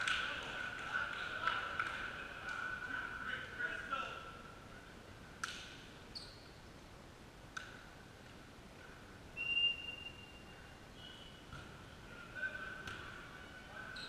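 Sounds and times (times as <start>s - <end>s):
referee's whistle: 9.4s - 11.5s.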